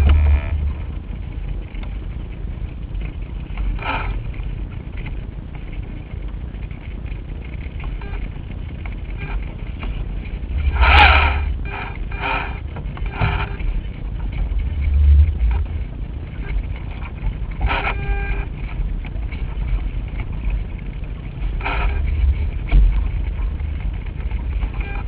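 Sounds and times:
wind buffeting microphone: 0.0 - 25.0
short pitched buzzes: 10.7 - 13.6.

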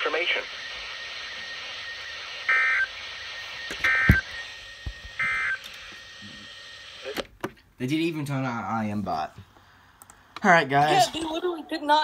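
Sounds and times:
radio hiss: 0.0 - 4.5
data tone bursts: 3.8 - 4.3, 5.2 - 5.6.

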